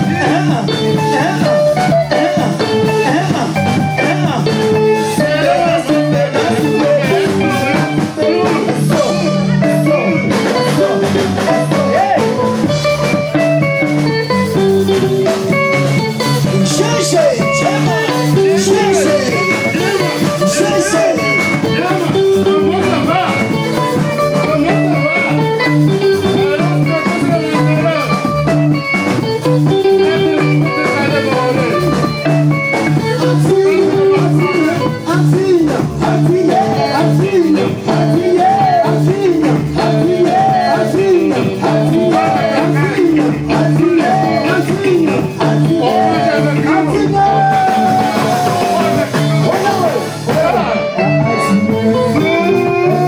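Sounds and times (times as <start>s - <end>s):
bass line: 0.0s - 53.0s
electric guitar lead lines: 0.0s - 53.0s
person singing: 0.0s - 53.0s.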